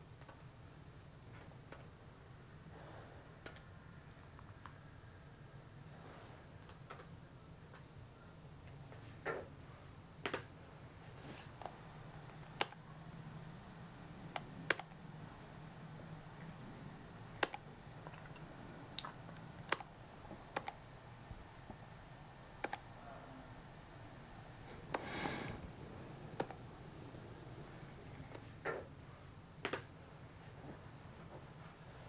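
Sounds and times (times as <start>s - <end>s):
faint low hum: 0.0s - 32.0s
laptop clicking: 11.4s - 13.2s, 14.2s - 15.0s, 17.3s - 20.9s, 22.5s - 23.0s, 24.7s - 26.7s.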